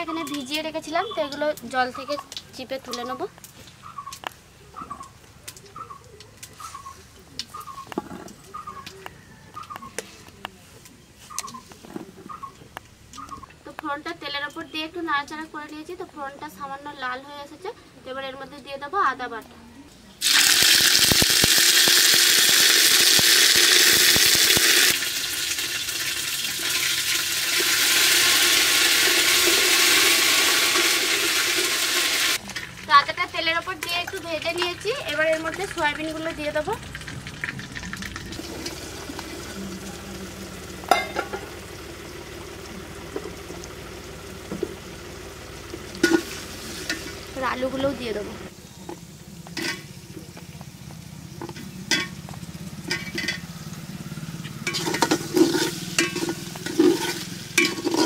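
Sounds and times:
paste sizzling in hot oil: 0:20.2 - 0:49.3, 0:54.6 - 0:58.0.

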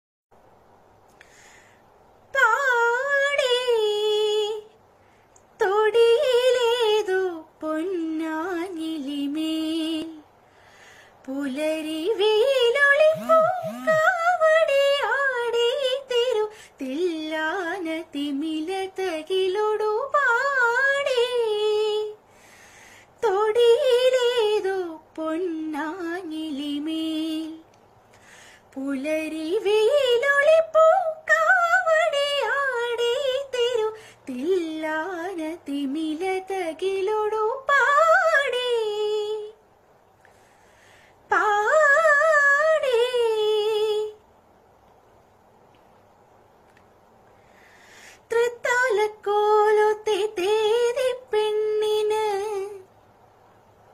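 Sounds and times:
woman singing unaccompanied: 0:02.3 - 0:04.8, 0:05.4 - 0:10.4, 0:11.2 - 0:22.3, 0:23.2 - 0:27.8, 0:28.6 - 0:39.6, 0:41.2 - 0:44.3, 0:48.2 - 0:53.0.

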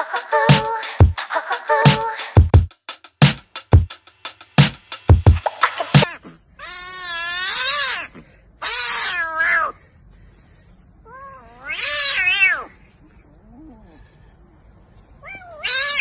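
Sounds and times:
kitten meowing: 0:15.2 - 0:16.0.

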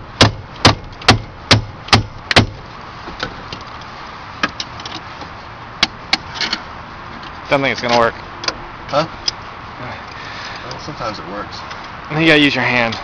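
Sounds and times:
hammer striking car: 0:00.2 - 0:02.6.

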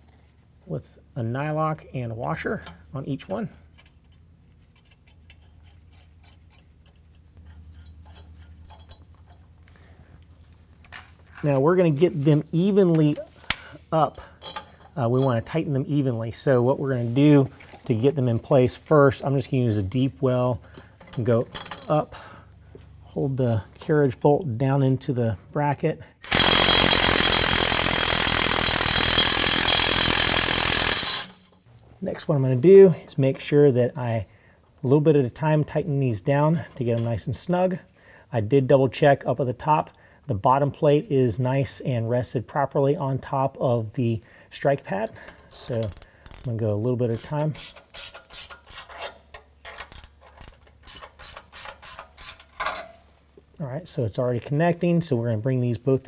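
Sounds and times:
impact driver spinning nut: 0:26.2 - 0:31.6, 0:47.2 - 0:49.0, 0:49.6 - 0:52.7
small metallic clicks of nuts: 0:47.2 - 0:53.0.

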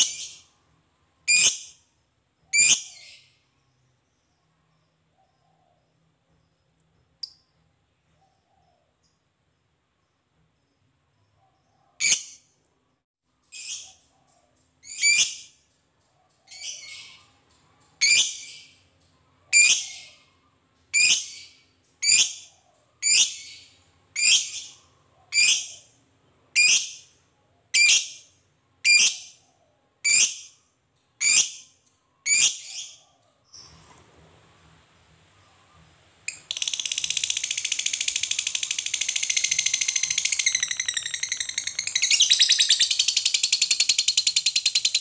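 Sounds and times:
lovebird shrill calls: 0:36.3 - 0:45.0.

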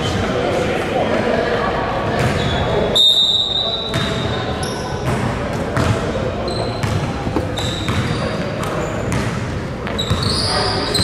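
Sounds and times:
voices echoing in hall: 0:00.0 - 0:11.0
sneakers squeaking: 0:02.0 - 0:11.0
basketball bouncing on court: 0:03.9 - 0:04.3, 0:05.0 - 0:10.4.

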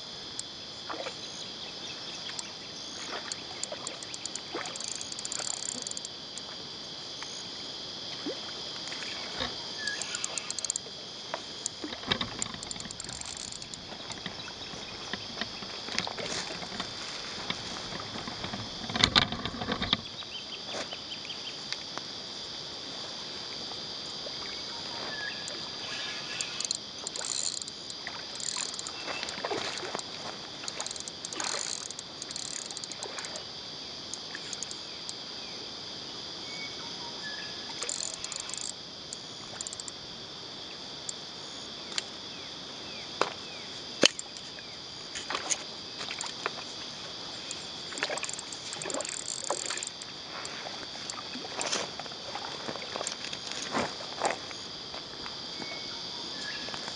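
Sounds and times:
high-pitched insect drone: 0:00.0 - 0:21.6, 0:23.6 - 0:56.9
sharp clicks: 0:03.6 - 0:06.1, 0:09.9 - 0:10.8, 0:11.6 - 0:14.3, 0:26.4 - 0:28.9, 0:30.7 - 0:33.0, 0:34.5 - 0:34.8, 0:37.8 - 0:38.8, 0:39.6 - 0:39.9, 0:48.0 - 0:50.0.

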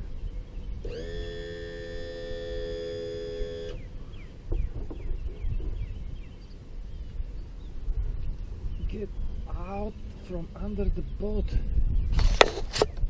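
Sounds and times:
sharp knocks: 0:04.5 - 0:06.0.

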